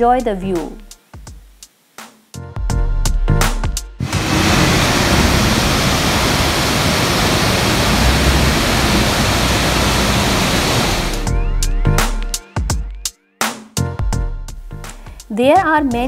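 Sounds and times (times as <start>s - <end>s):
water rushing over lock gates: 4.0s - 11.3s.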